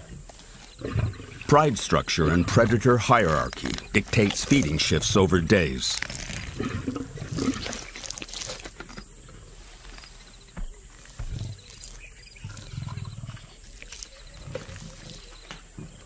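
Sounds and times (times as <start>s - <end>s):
chewing and tearing meat: 3.1s - 5.0s, 5.7s - 9.0s, 11.0s - 15.7s
lions growling low: 6.0s - 8.0s, 11.0s - 16.0s.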